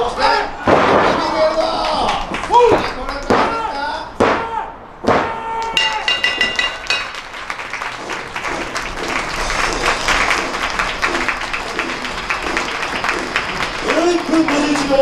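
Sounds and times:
crowd applauding: 0:01.3 - 0:03.3, 0:05.6 - 0:15.0
ring bell struck rapidly: 0:05.8 - 0:07.2.

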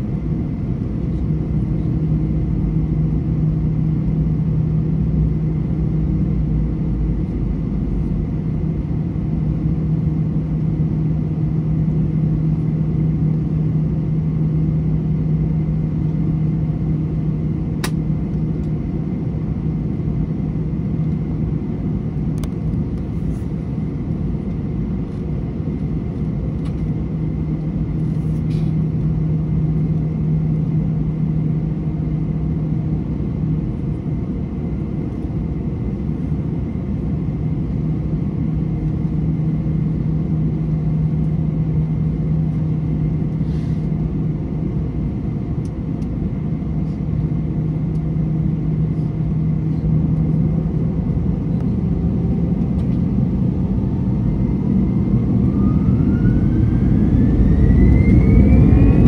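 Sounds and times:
jet engines idling rumble: 0:00.0 - 0:59.0.

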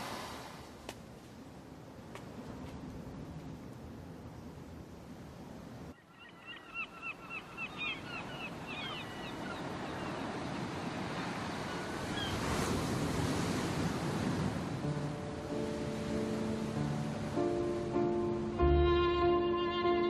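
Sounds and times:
waves breaking on a beach: 0:00.0 - 0:01.2, 0:07.4 - 0:18.1
gulls calling: 0:06.0 - 0:12.5.

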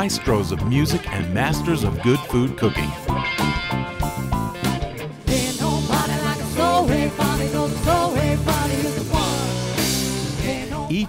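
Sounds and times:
person singing: 0:00.0 - 0:03.0, 0:05.3 - 0:11.0
band music: 0:00.0 - 0:11.0.

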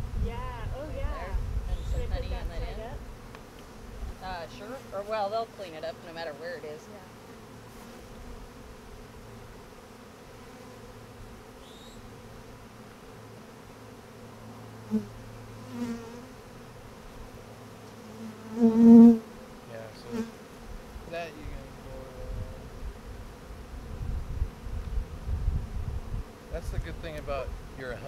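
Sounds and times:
bees buzzing: 0:00.0 - 0:28.0
single bee flying close by: 0:06.8 - 0:27.9.

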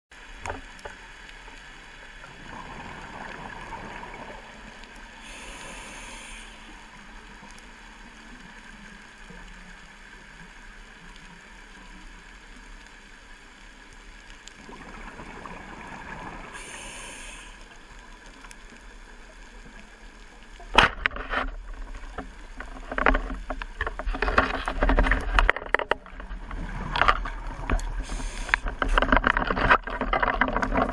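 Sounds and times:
exhaled bubbles underwater: 0:02.2 - 0:08.6, 0:14.6 - 0:18.2
scuba regulator breathing: 0:05.2 - 0:06.9, 0:16.5 - 0:17.8, 0:28.0 - 0:28.8
spear clicking and clattering: 0:20.8 - 0:27.9, 0:28.5 - 0:30.9.

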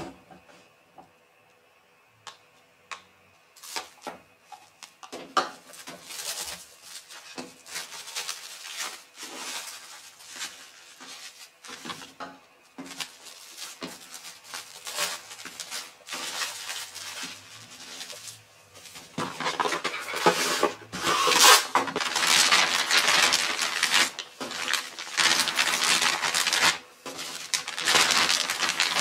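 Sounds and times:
cling film crinkling: 0:05.6 - 0:12.1, 0:12.8 - 0:29.0.

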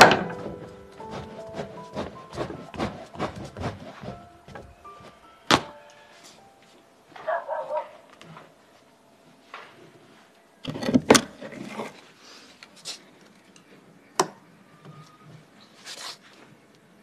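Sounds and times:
wooden blocks knocking and scraping: 0:00.0 - 0:04.7.

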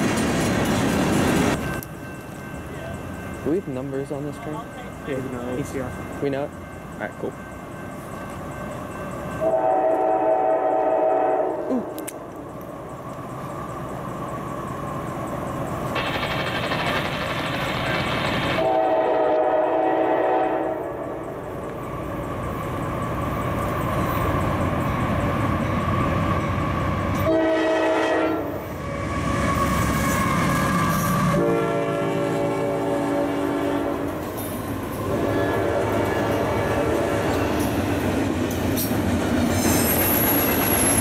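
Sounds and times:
train rumbling: 0:00.0 - 0:41.0
locomotive horn blasts: 0:09.4 - 0:11.7, 0:18.6 - 0:21.2, 0:27.2 - 0:28.6, 0:31.3 - 0:34.2, 0:35.1 - 0:37.2
freight cars rolling past: 0:12.1 - 0:18.8.

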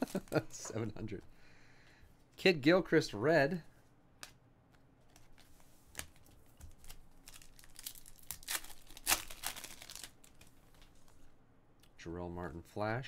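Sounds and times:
foil wrapper crinkling and tearing: 0:06.7 - 0:10.8.

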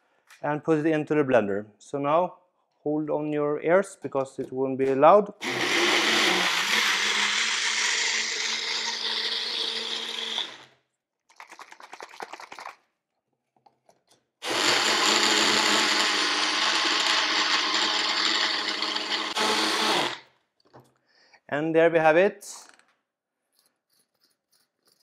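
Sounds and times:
blender running: 0:05.4 - 0:10.7, 0:14.4 - 0:20.2.

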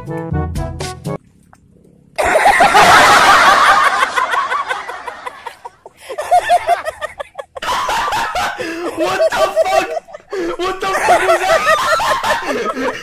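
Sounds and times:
loud laughter: 0:02.2 - 0:13.0.

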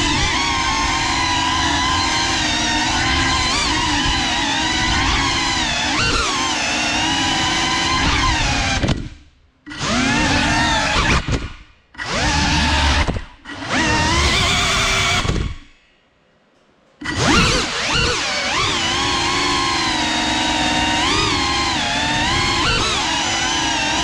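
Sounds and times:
drone motors and propellers whining: 0:00.0 - 0:15.7, 0:17.0 - 0:24.0.

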